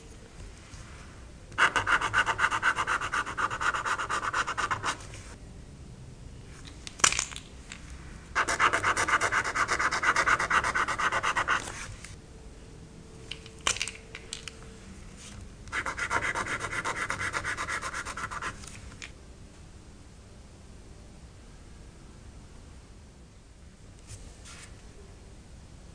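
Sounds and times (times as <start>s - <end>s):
highlighter scribbling on paper: 1.6s - 5.4s, 8.4s - 11.9s, 15.7s - 18.6s.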